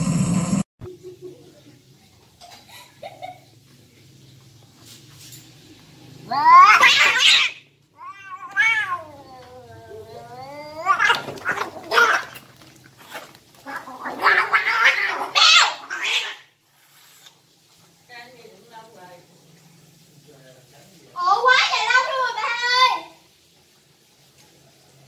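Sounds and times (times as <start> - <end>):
cats yowling and screeching: 6.3 - 12.5, 13.6 - 16.6.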